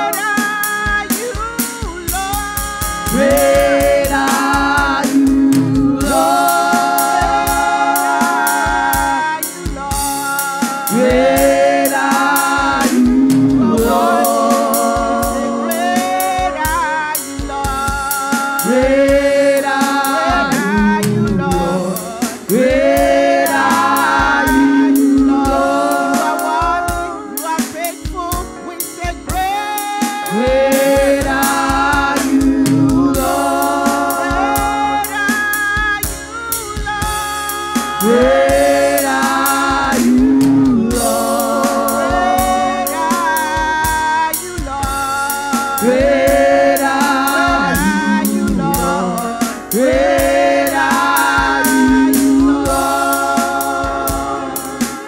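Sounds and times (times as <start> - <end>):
women singing gospel together: 0.0 - 2.2, 2.8 - 28.2, 28.8 - 55.0
live accompaniment with drum beat: 0.0 - 55.0.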